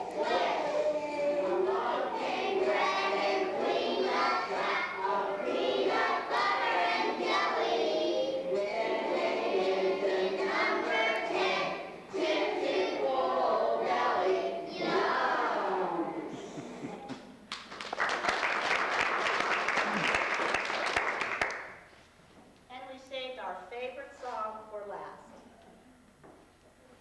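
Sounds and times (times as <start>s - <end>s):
children singing: 0.0s - 16.4s.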